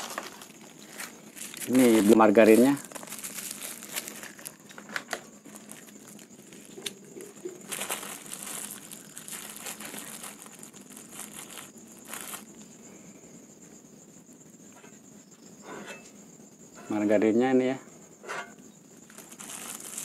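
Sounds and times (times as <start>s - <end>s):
plastic wrapper crinkling: 0.0s - 12.6s, 19.0s - 20.0s
crickets chirring: 0.0s - 20.0s.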